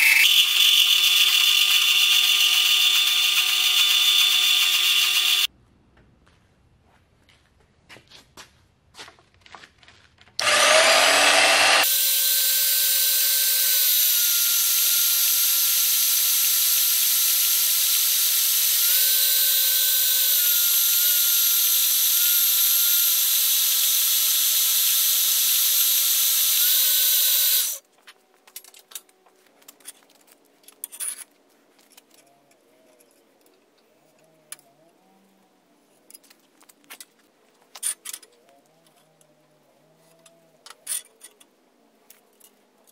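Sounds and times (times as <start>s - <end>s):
drill press motor whining: 0.0s - 5.5s, 10.4s - 27.8s.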